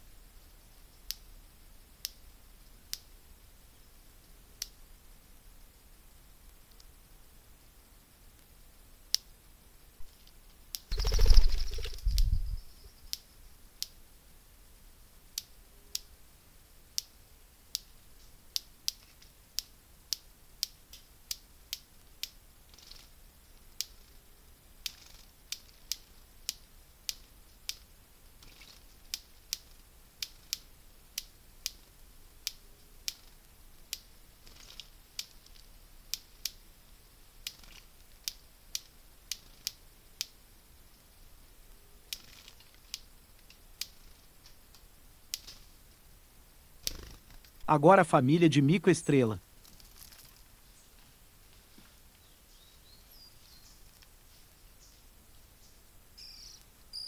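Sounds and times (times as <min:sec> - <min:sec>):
outdoor background: 0:00.0 - 0:57.0
faint high calls: 0:56.2 - 0:57.0.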